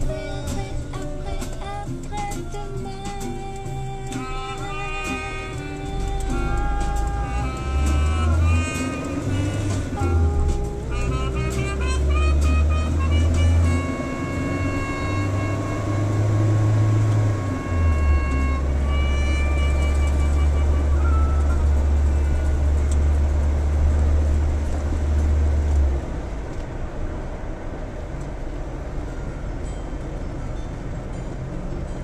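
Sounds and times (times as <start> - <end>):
held musical notes: 0.0 - 25.2
car interior engine and road rumble: 0.0 - 32.0.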